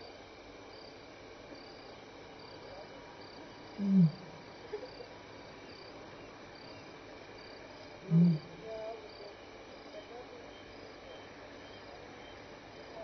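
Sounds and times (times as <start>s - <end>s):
crickets chirping: 0.0s - 13.0s
lion low contact call: 3.8s - 4.4s, 8.0s - 8.6s.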